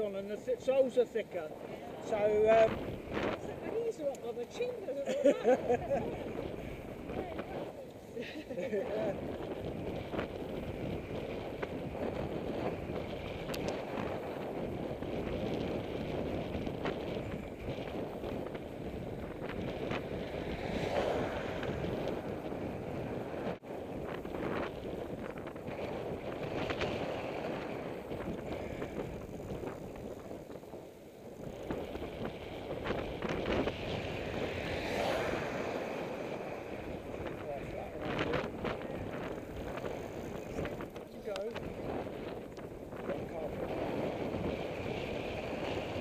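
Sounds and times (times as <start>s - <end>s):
bicycle road rumble: 0.0s - 46.0s
wind rush on microphone: 0.0s - 46.0s
bicycle clicks and rattles: 9.3s - 20.4s, 38.4s - 43.2s
faint clicks: 13.4s - 13.8s.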